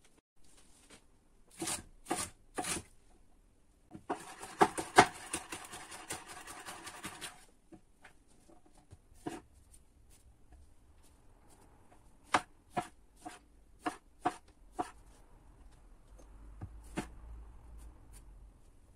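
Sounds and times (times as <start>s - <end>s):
fast knife chopping: 4.1s - 7.3s, 12.2s - 15.0s
knife cutting on wooden board: 12.2s - 15.0s.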